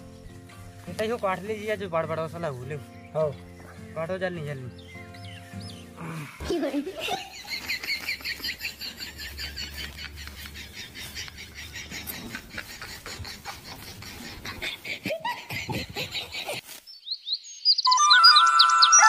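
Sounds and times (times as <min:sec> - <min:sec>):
grass cut with a sickle: 0:09.2 - 0:14.7, 0:16.2 - 0:17.0.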